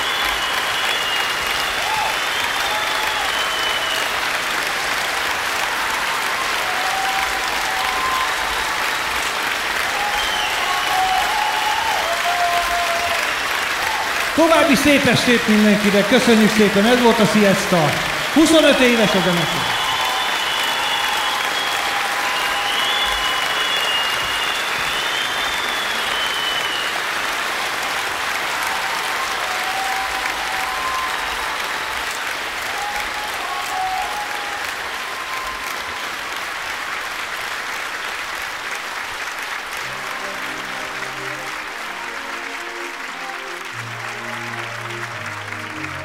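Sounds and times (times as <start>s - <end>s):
high whistles: 0.0s - 4.2s, 10.0s - 12.0s, 18.2s - 27.0s
audience applauding: 0.0s - 46.0s
bass and keyboard music: 39.9s - 46.0s.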